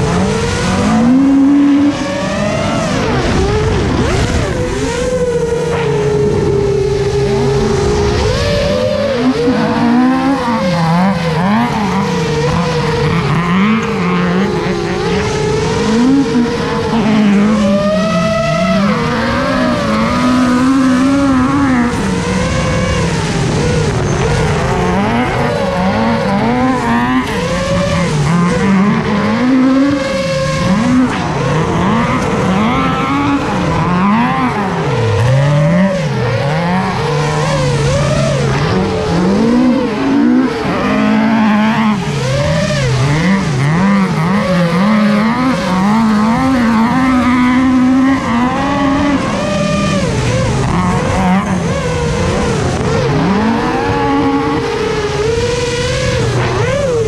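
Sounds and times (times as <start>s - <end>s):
motor revving: 0.0s - 57.0s.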